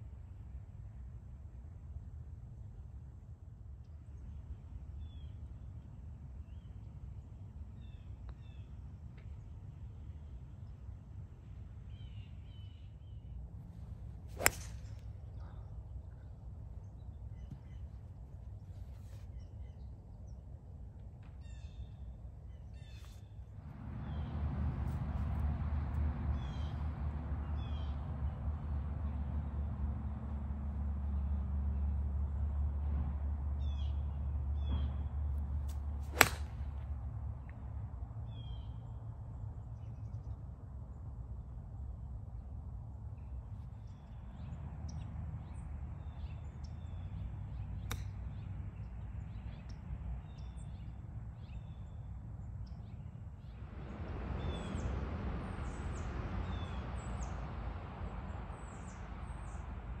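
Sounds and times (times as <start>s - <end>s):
golf club striking ball: 14.3s - 15.4s, 36.1s - 36.8s.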